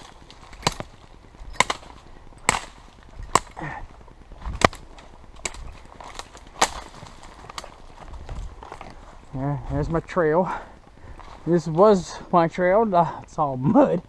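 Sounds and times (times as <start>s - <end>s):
branches snapping: 0.0s - 9.3s
brush rustling: 0.0s - 13.7s.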